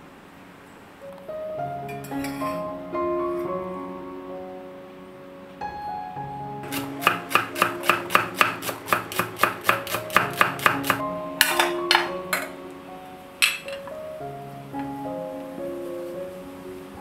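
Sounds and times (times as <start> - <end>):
soft background music: 0.8 - 17.0
knife chopping on wooden board: 6.7 - 11.0.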